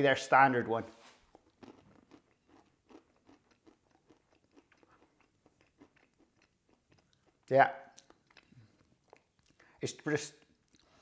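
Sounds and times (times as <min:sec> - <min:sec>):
chewing crunchy pastry: 0:01.2 - 0:09.8.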